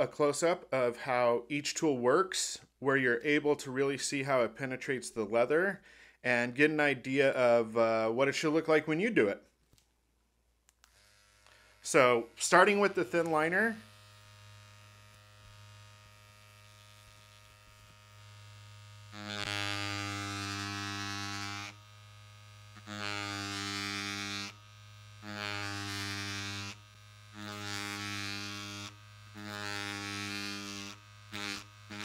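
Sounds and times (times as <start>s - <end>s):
tattoo machine buzzing: 10.8s - 32.0s.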